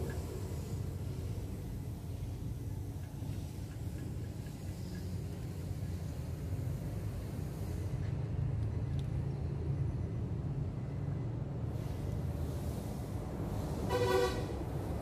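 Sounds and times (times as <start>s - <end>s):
vehicle rumble: 0.0s - 15.0s
short horn toot: 13.9s - 14.5s.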